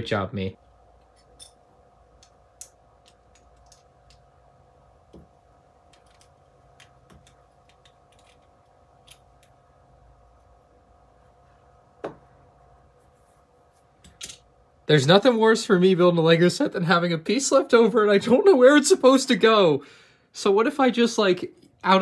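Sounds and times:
faint hum: 0.0s - 22.0s.

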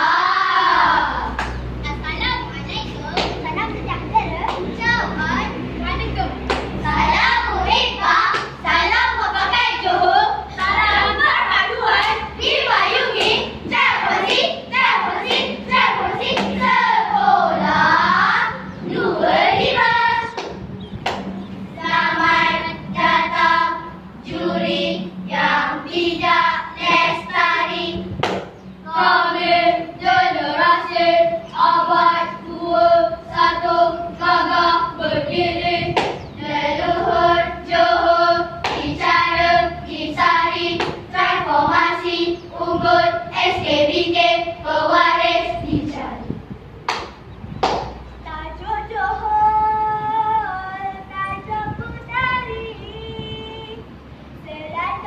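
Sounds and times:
children chanting in unison: 0.0s - 1.4s, 4.8s - 20.4s, 21.8s - 28.0s, 28.8s - 46.3s
sharp hand claps: 1.4s - 1.6s, 3.1s - 3.4s, 4.4s - 4.7s, 6.5s - 6.8s, 8.3s - 8.6s, 15.2s - 15.5s, 16.3s - 16.6s, 20.3s - 21.4s, 28.2s - 28.6s, 35.9s - 36.2s, 38.6s - 39.0s, 40.8s - 41.0s, 46.8s - 48.0s.

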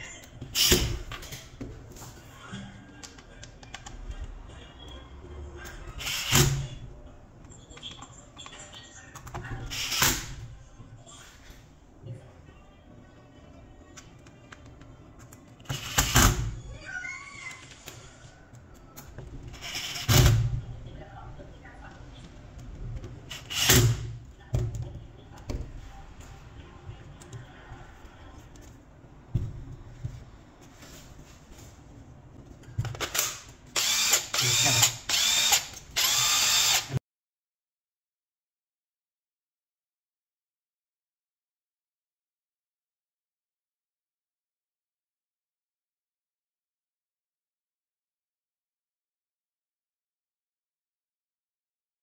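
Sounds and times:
cordless drill running: 33.8s - 37.0s.

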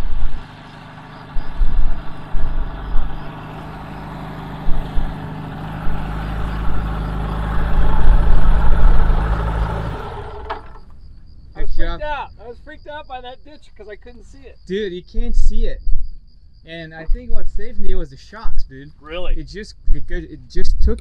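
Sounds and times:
wind thumping on microphone: 0.0s - 0.6s, 1.3s - 3.5s, 4.5s - 6.9s, 15.6s - 16.2s
plane engine and propeller: 0.0s - 11.0s.

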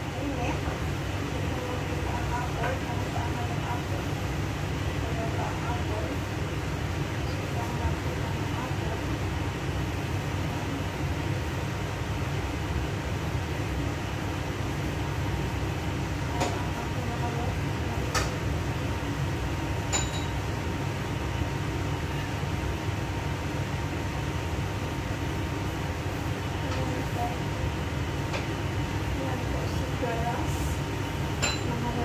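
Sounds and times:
range hood extractor fan rumble: 0.0s - 32.0s
kitchenware clinking: 19.9s - 20.4s, 31.4s - 31.8s.

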